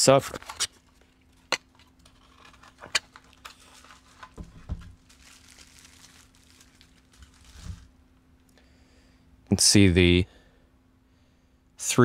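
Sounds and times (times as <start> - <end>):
bubble wrap crinkling: 0.7 - 8.0.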